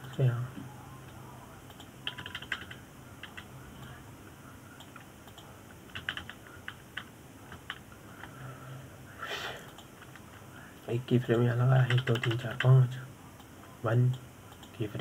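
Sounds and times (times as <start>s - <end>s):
computer keyboard typing: 1.1s - 3.5s, 4.8s - 7.9s, 11.7s - 12.9s.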